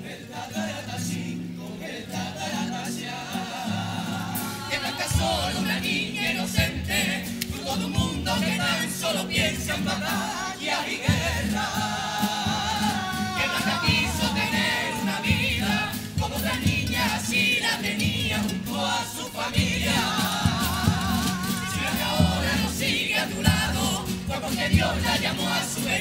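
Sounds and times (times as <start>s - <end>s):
chorus of young voices singing: 0.0s - 26.0s
strummed guitars: 0.0s - 26.0s
drum beat: 11.0s - 26.0s.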